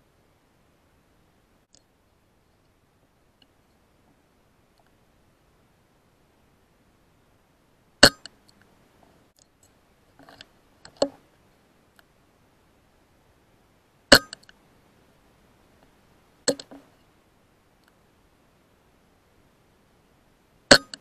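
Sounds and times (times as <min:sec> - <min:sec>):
quiet clicks and clacks: 0:15.8 - 0:17.1.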